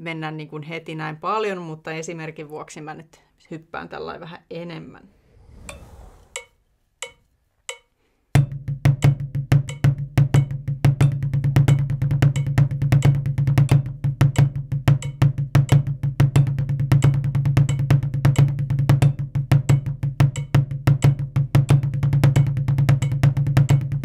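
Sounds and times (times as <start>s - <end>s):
drumsticks on practice pad: 5.6s - 8.0s.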